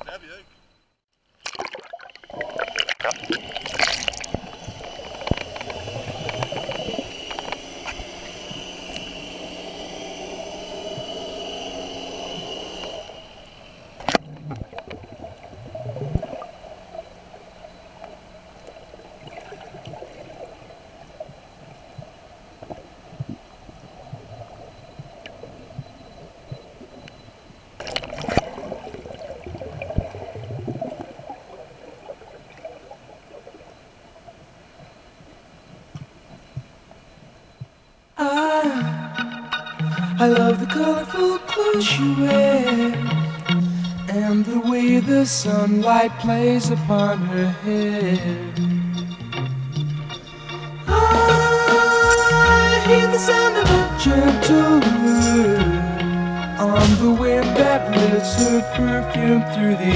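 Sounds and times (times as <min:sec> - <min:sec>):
steady hum: 0:00.0 - 0:59.9
muffled underwater sloshing: 0:01.4 - 0:38.2.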